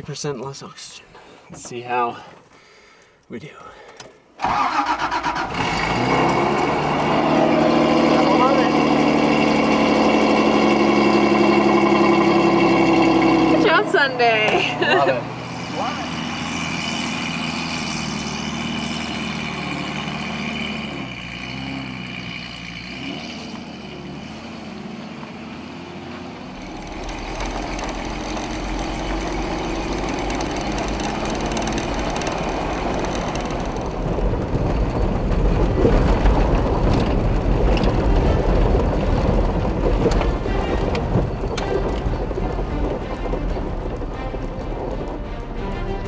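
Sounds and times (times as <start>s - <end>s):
road and wind noise: 3.9s - 46.0s
engine running: 4.4s - 46.0s.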